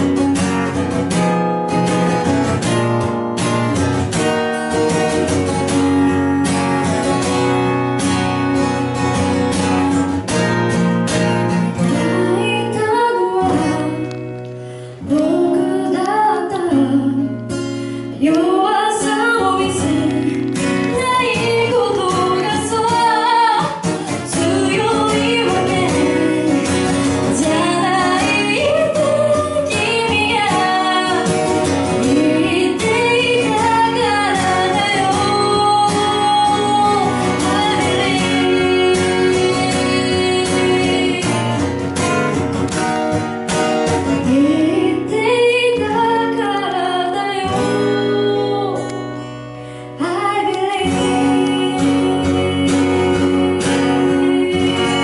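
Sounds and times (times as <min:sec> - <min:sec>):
acoustic guitar strumming: 0:00.0 - 0:55.0
woman singing: 0:11.6 - 0:42.3, 0:44.0 - 0:55.0.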